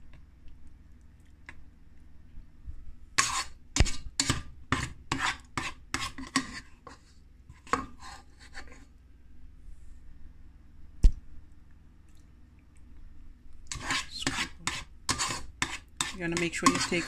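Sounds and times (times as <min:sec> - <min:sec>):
spoon scraping cooking pot: 0:03.2 - 0:08.8, 0:13.7 - 0:17.0.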